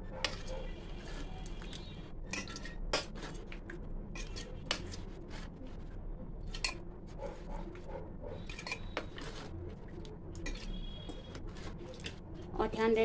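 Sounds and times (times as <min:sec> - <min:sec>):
metal spoon scraping bowl: 0:00.2 - 0:05.5, 0:08.4 - 0:09.5, 0:10.4 - 0:12.0
spoon clinking on glass jar: 0:08.4 - 0:08.9.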